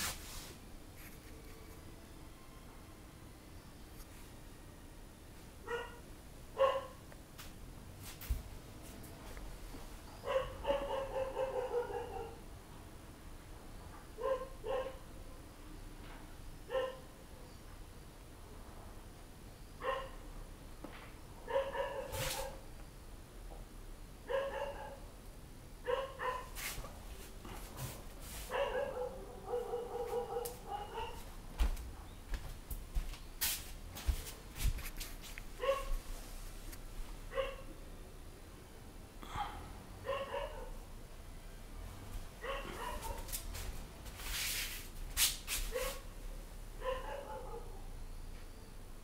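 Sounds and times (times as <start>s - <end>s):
dog barking high yaps: 5.7s - 6.0s, 6.6s - 7.0s, 10.3s - 12.4s, 19.8s - 20.2s, 21.5s - 22.6s, 24.3s - 25.0s, 25.9s - 26.5s, 28.5s - 31.2s, 35.6s - 35.9s, 40.0s - 40.8s, 42.4s - 43.3s, 46.8s - 47.8s.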